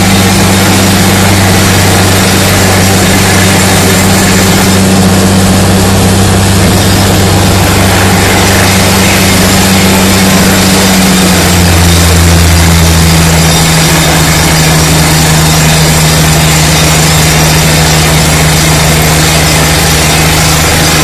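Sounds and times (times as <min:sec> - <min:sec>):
drilling rig engine running: 0:00.0 - 0:21.0
loud rushing noise: 0:00.0 - 0:21.0.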